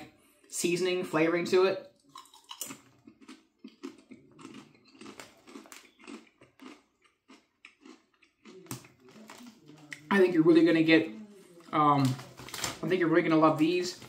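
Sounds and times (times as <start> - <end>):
crunching chips: 2.0 - 10.1.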